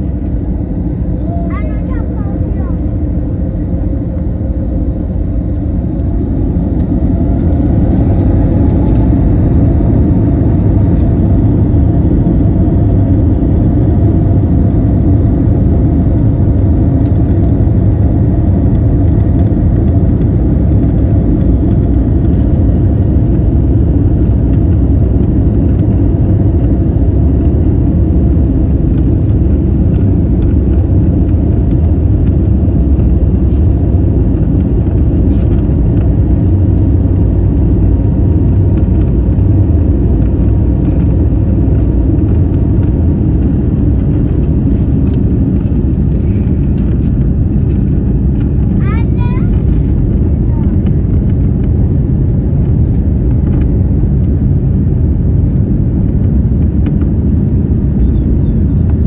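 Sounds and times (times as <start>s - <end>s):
jet engines rumbling: 0.0s - 59.0s.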